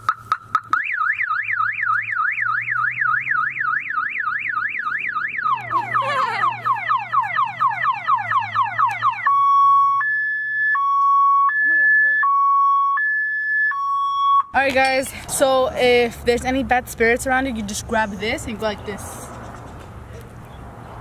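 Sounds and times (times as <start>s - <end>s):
car alarm siren: 0.5s - 14.6s.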